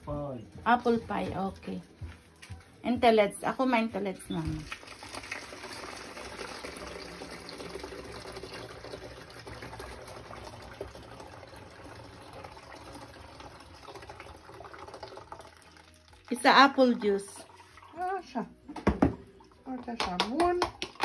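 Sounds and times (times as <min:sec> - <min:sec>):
juice pouring in a trickle: 0:04.4 - 0:18.4.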